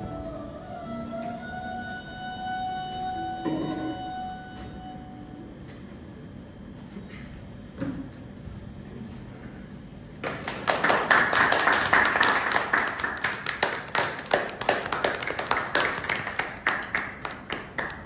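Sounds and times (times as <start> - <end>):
audience applauding: 10.2 - 18.0.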